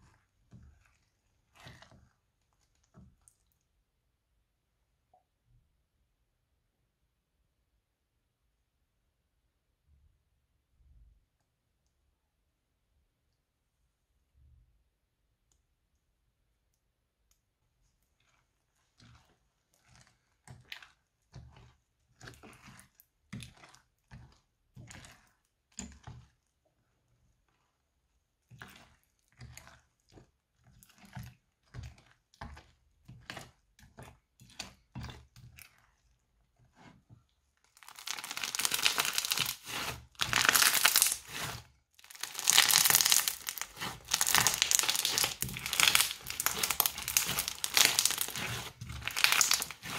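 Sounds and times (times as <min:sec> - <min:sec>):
spatula stirring slime: 0:00.0 - 0:05.6, 0:13.9 - 0:49.9
crunchy slime crackling: 0:37.7 - 0:49.9.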